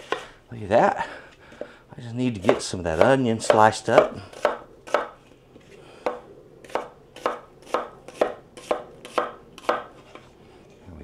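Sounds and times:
knife slicing onion on wooden board: 0.0 - 0.3, 2.4 - 5.2, 6.0 - 10.3.

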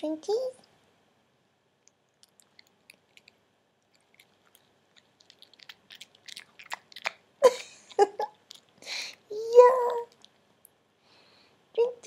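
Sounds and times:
dog chewing: 2.1 - 8.9
dog vocal sound: 3.9 - 7.2.

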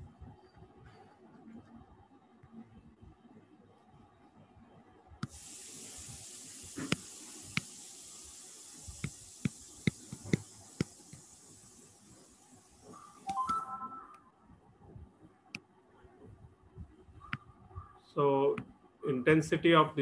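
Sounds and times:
steady high hiss: 5.2 - 14.4.

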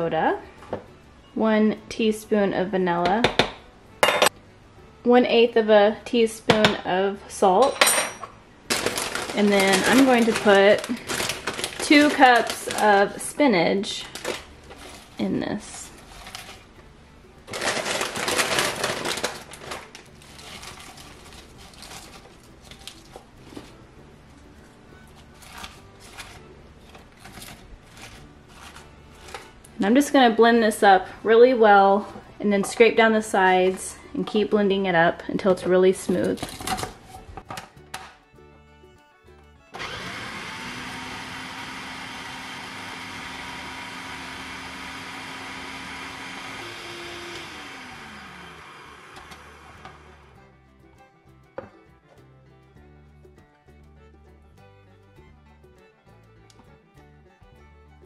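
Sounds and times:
food processor blending: 39.8 - 50.4.

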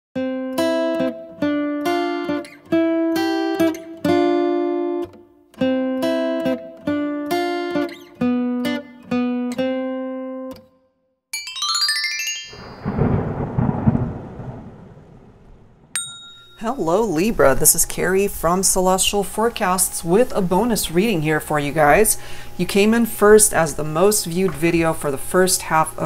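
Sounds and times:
plucked-string melody: 11.4 - 13.1
rising chime sweep: 11.4 - 13.5
thunder-like rumble and crackle: 12.8 - 16.0.

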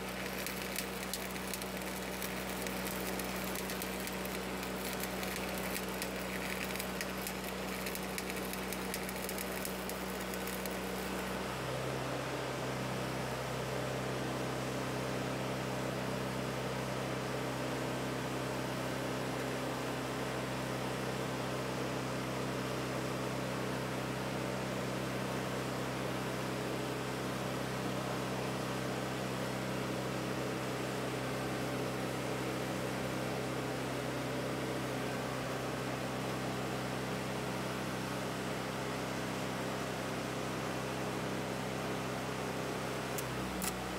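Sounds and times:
engine humming steadily: 0.0 - 43.9.

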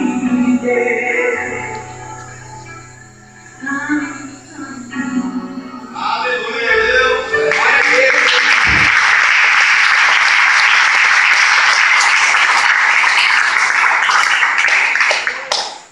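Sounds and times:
music: 0.0 - 9.5
audience applauding: 7.4 - 15.9.

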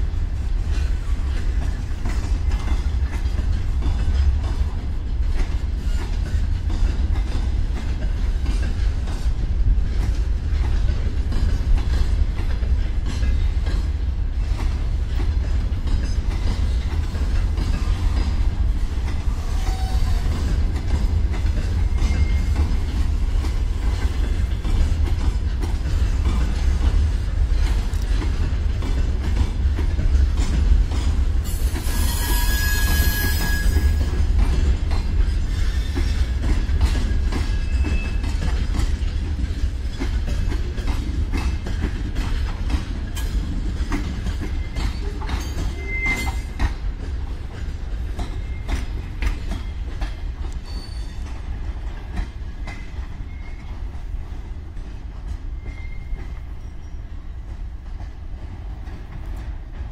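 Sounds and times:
freight train rumbling: 0.0 - 59.9
wheels clicking over rail joints: 0.0 - 59.9
high wheel squeals: 19.4 - 20.3, 31.5 - 34.2, 44.6 - 46.5, 50.6 - 51.3, 55.6 - 57.0.

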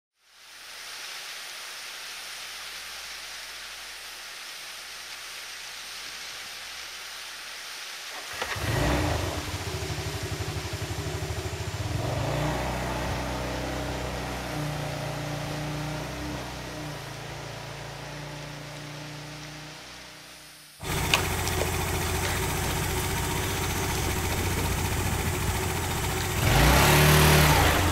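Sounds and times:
steady hiss: 0.2 - 27.9
vehicle engine throbbing: 8.4 - 20.1, 20.8 - 27.9.

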